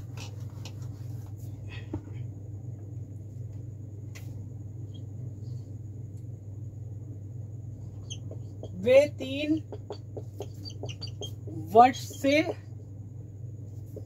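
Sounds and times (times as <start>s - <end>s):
low electrical hum: 0.0s - 14.0s
marker writing on a board: 8.0s - 12.6s.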